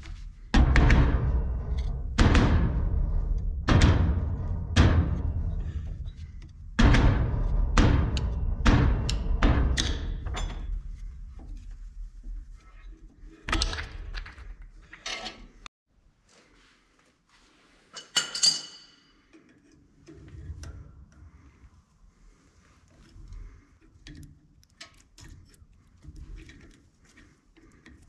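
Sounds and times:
ringing metal clink: 18.0 - 19.1.

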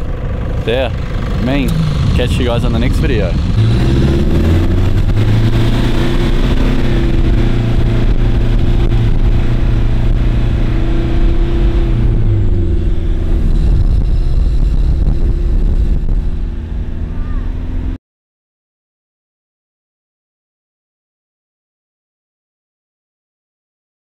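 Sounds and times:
truck engine running: 0.0 - 18.0.

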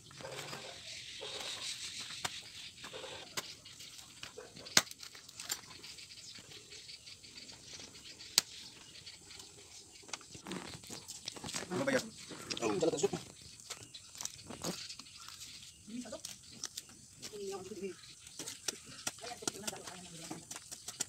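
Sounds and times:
light scraping and rustling: 10.0 - 21.0.

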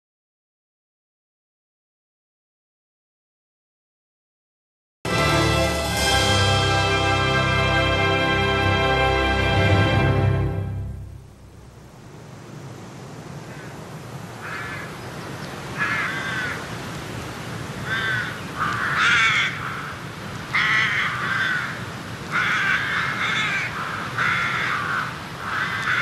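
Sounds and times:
crows cawing: 13.4 - 13.8, 14.4 - 15.0, 15.8 - 16.7, 17.8 - 26.0.

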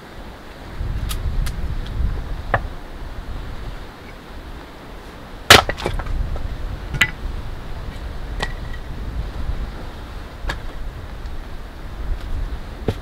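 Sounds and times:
wind rumble on microphone: 0.0 - 13.0
stone cracks and knocks: 5.5 - 6.1.

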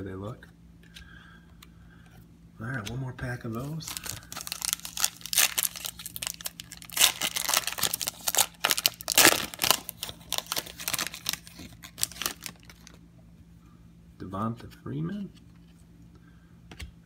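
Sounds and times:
foil wrapper crinkling and tearing: 3.6 - 13.0.

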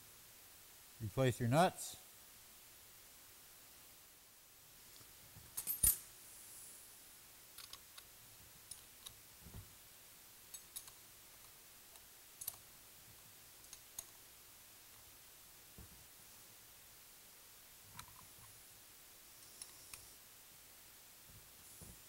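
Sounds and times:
metallic clicks of nuts and wrench: 10.5 - 11.0, 12.4 - 12.6.

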